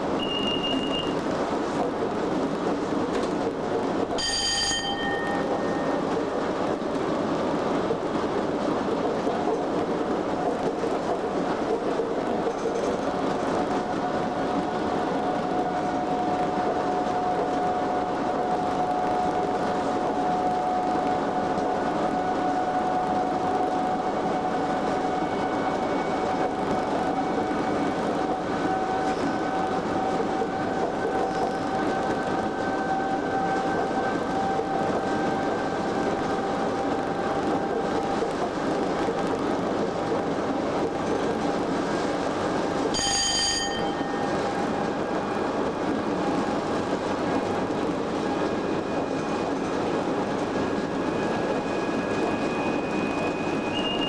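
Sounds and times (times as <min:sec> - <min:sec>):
wheels rumbling on rail: 0:00.0 - 0:54.0
bell-like ringing tone: 0:04.2 - 0:06.1, 0:42.9 - 0:44.4.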